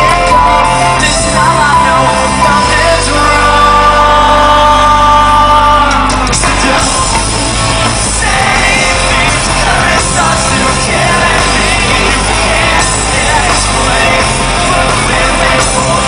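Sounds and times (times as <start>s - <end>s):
drums: 0.0s - 16.0s
electric guitar: 0.0s - 16.0s
grand piano: 0.0s - 16.0s
live rock band playing: 0.0s - 16.0s
person singing: 0.0s - 16.0s.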